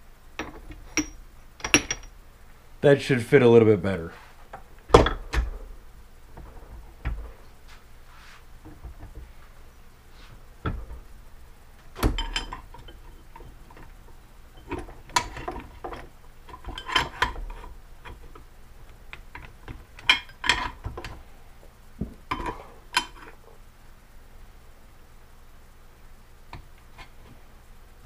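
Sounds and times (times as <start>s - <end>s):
metal tools clinking on metal: 0.4s - 2.1s.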